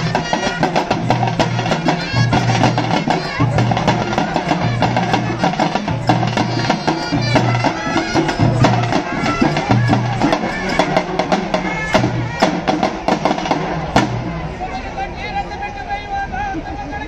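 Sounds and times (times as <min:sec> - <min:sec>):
high wavering melody: 0:00.0 - 0:13.1
drums beating fast rhythm: 0:00.0 - 0:14.9.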